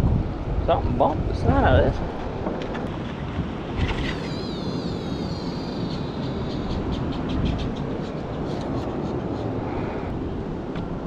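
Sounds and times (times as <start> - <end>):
surf washing under pier: 0.0 - 11.0
wind buffeting microphone: 0.0 - 11.0
wavering high whine: 3.1 - 10.4.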